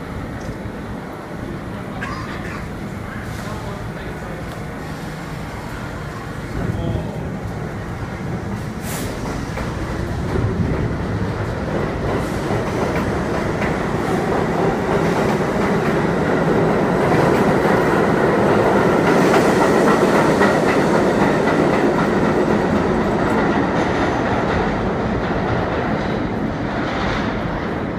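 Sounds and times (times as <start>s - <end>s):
subway train rumbling: 0.0s - 27.9s.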